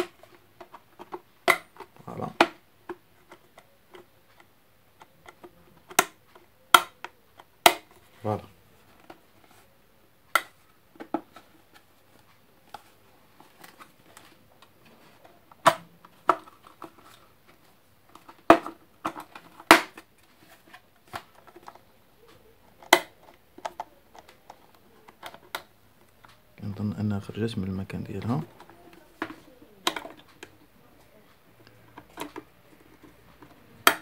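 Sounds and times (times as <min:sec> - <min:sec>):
kettle plastic clicks and knocks: 0:28.2 - 0:30.6, 0:31.7 - 0:34.0.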